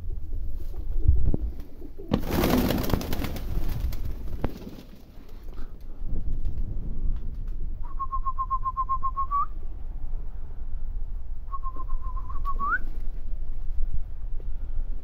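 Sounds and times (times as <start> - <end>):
wind rumble on microphone: 0.0 - 1.9, 3.3 - 15.0
person whistling: 7.8 - 9.5, 11.5 - 12.8.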